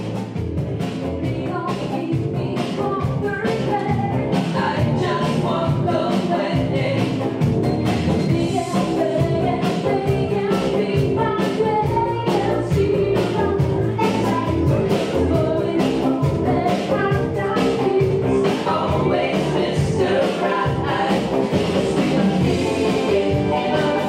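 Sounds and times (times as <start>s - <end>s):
live band playing dance music: 0.0s - 24.0s
woman singing into microphone: 1.2s - 7.1s, 8.3s - 21.2s.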